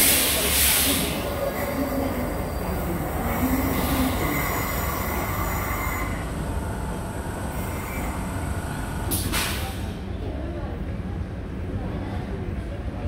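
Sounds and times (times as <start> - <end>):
train brakes squealing: 0.0 - 6.3
train rumble: 0.0 - 13.0.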